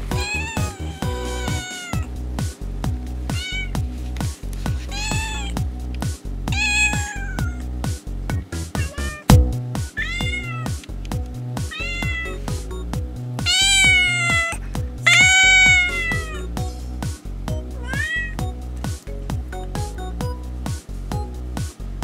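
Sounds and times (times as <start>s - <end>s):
background music with steady beat: 0.0s - 22.0s
kitten meowing: 0.1s - 2.1s, 3.3s - 3.8s, 4.9s - 5.6s, 6.5s - 7.7s, 8.8s - 9.3s, 10.0s - 10.7s, 11.7s - 12.4s, 13.4s - 16.5s, 17.8s - 18.4s.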